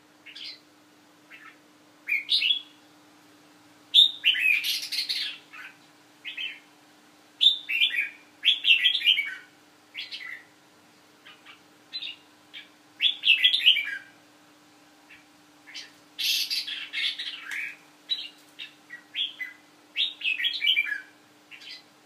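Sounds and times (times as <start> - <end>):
bird chirping: 0.2 - 0.6, 1.3 - 2.8, 3.9 - 6.7, 7.4 - 10.5, 11.2 - 14.2, 15.1 - 21.9.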